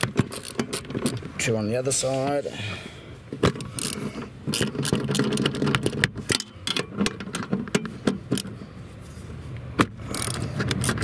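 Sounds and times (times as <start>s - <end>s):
ratchet clicking on bolts: 0.0s - 1.2s, 3.5s - 7.2s, 10.1s - 11.0s.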